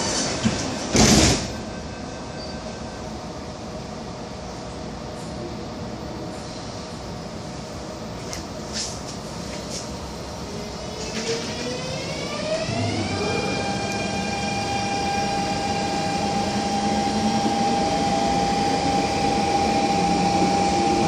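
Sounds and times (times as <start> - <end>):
train traction motors whining: 10.4 - 21.0.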